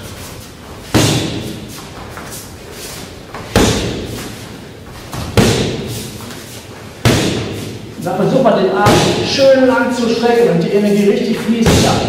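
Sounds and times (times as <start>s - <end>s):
boxing glove smacking mitt: 0.9s - 1.6s, 5.1s - 6.0s, 7.0s - 7.8s.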